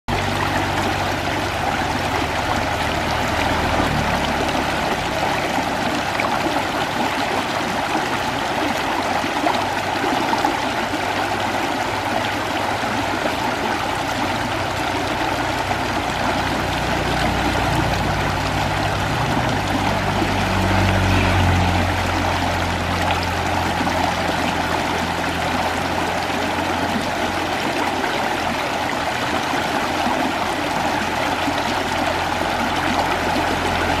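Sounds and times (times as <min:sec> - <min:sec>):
stream rushing over rocks: 0:00.1 - 0:34.0.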